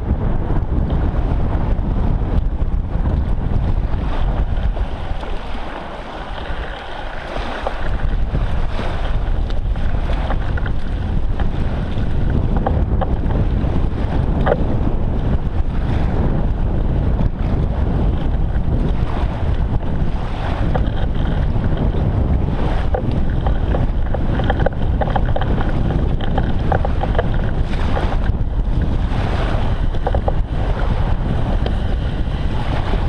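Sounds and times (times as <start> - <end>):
wind buffeting microphone: 0.0 - 33.0
small waves lapping: 3.9 - 12.3.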